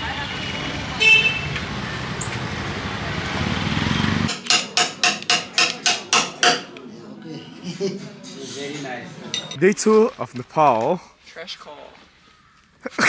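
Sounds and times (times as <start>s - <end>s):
hammer striking chisel into wood: 4.3s - 6.7s.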